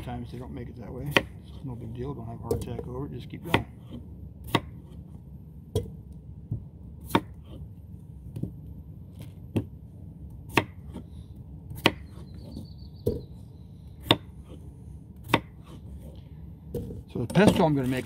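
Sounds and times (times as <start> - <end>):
knife chopping on cutting board: 1.1 - 1.4, 3.5 - 5.0, 7.0 - 7.6, 10.5 - 11.0, 14.0 - 14.6, 15.2 - 15.8.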